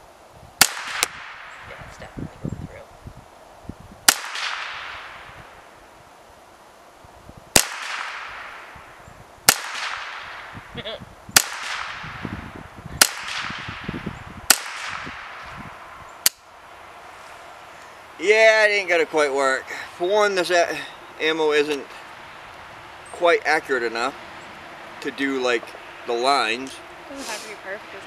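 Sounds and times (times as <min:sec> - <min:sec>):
rifle shots with echo: 0:00.6 - 0:01.6, 0:04.1 - 0:05.3, 0:07.5 - 0:08.8, 0:09.5 - 0:10.5, 0:11.4 - 0:12.3, 0:13.0 - 0:15.4.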